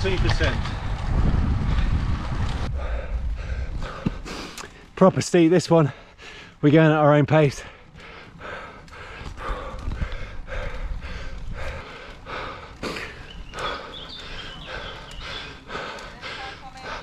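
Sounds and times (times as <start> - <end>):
person breathing hard: 2.7 - 4.9, 5.9 - 6.6, 7.6 - 17.0.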